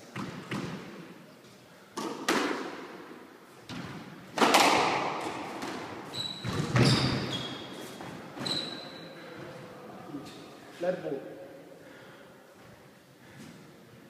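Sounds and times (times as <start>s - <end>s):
squash ball hits: 2.0s - 3.0s, 3.7s - 7.3s.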